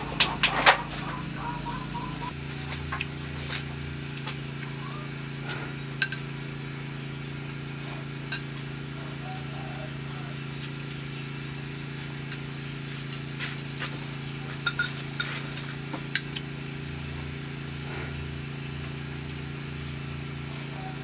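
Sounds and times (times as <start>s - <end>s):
steady low hum: 0.0s - 21.0s
utensils clinking against bowl: 5.7s - 6.6s, 7.6s - 8.7s, 9.6s - 11.2s, 14.5s - 16.9s.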